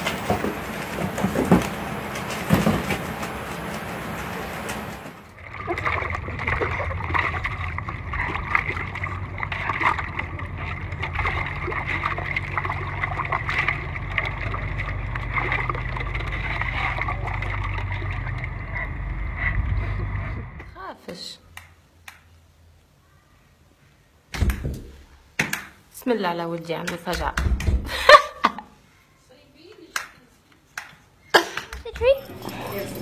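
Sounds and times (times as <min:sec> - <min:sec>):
dog splashing through water: 0:00.0 - 0:18.9
low rumble: 0:05.3 - 0:20.8.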